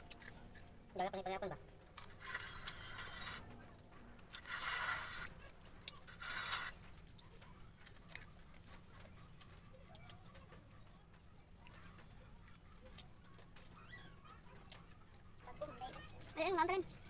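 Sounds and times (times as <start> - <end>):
bones clicking while chewed: 4.4 - 10.8.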